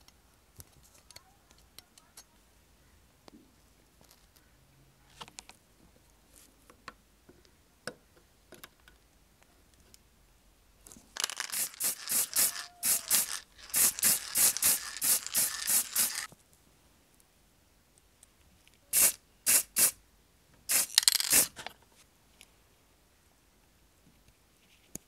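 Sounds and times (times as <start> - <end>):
aerosol spray paint bursts: 11.2 - 16.3, 18.9 - 20.0, 20.7 - 21.6.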